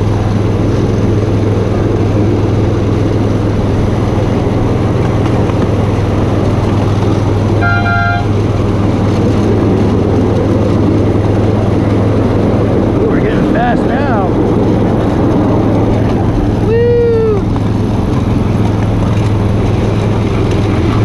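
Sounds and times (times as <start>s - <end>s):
miniature train running hum: 0.0s - 21.0s
train horn toot: 7.6s - 8.4s.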